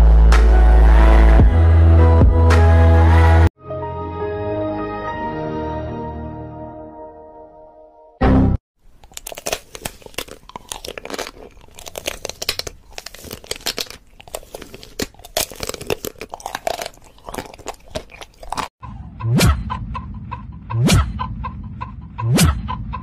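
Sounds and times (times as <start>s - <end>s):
crunchy food being chewed: 8.8s - 18.8s.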